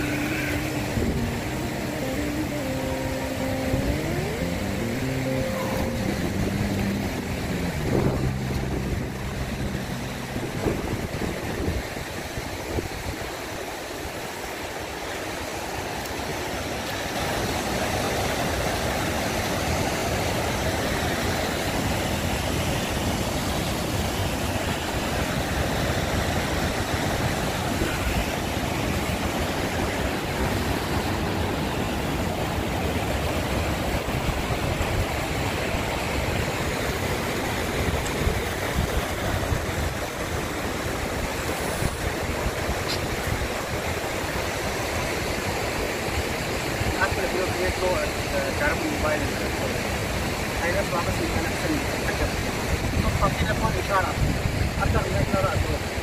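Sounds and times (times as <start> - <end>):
low tones shifting in pitch: 0.0 - 12.0
steady rushing noise: 0.0 - 15.0.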